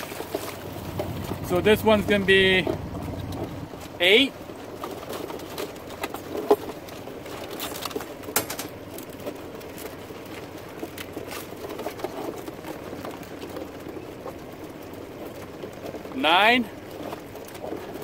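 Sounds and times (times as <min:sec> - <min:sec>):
clicks and knocks of handling: 0:04.7 - 0:14.4.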